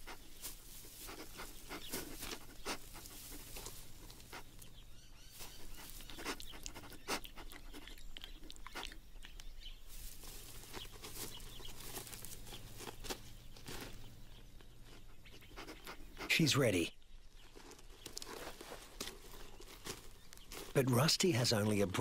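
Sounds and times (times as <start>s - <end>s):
kangaroo sniffing: 0.0s - 16.4s.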